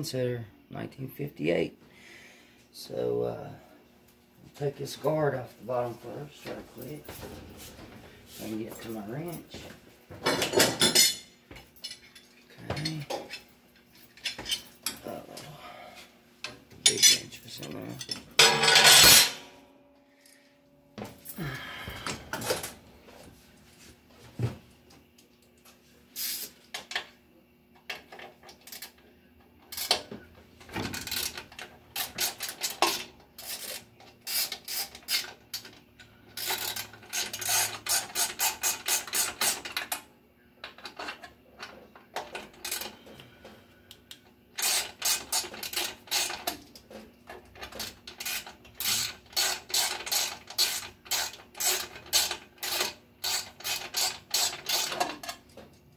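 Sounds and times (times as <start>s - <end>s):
faint steady hum: 0.0s - 55.9s
ratchet wrench clicking: 32.0s - 35.3s, 36.4s - 39.7s, 44.6s - 46.4s, 48.2s - 55.0s.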